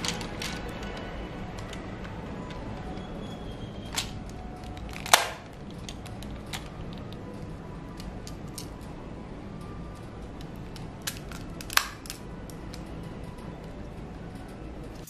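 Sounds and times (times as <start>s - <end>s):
plastic toy parts clicking: 0.0s - 3.0s, 3.9s - 8.9s, 10.3s - 12.9s
sharp plastic snap: 4.9s - 6.0s.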